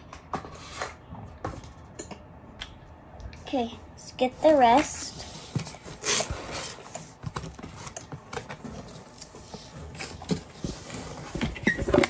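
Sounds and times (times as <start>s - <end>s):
cardboard box rustling and scraping: 8.6s - 12.0s.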